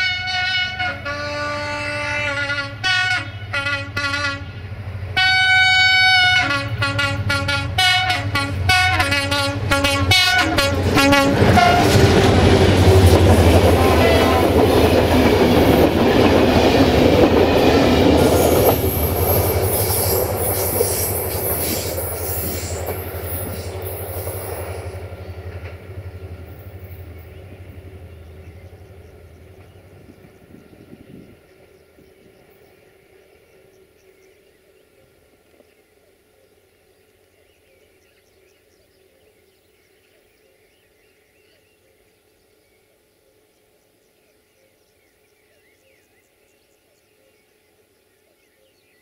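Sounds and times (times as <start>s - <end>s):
train horn blasts: 0.0s - 14.9s
train wheels clattering on rails: 10.8s - 27.4s.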